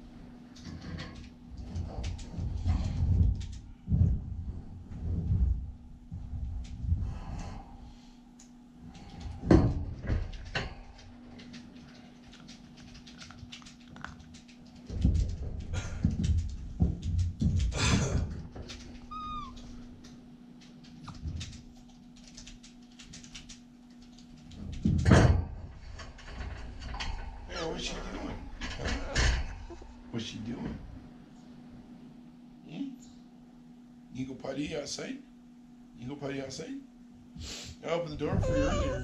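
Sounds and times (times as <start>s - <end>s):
puppy bumping and rustling: 0.6s - 7.1s, 12.4s - 19.8s, 38.2s - 39.0s
puppy whining: 18.9s - 19.8s, 29.0s - 30.0s, 38.3s - 39.0s.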